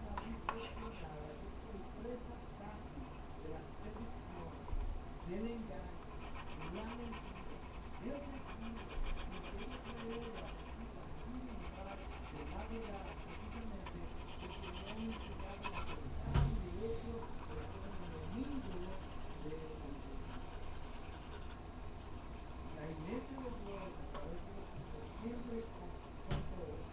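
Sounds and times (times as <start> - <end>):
coloured pencil scratching on paper: 0.1 - 1.1, 6.0 - 16.0, 17.2 - 25.5
person's voice: 22.6 - 26.9.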